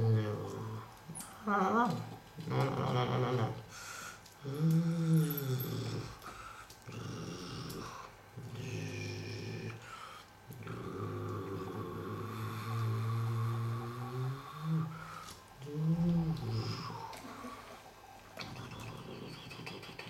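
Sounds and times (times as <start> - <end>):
person imitating engine sounds: 10.6 - 15.0.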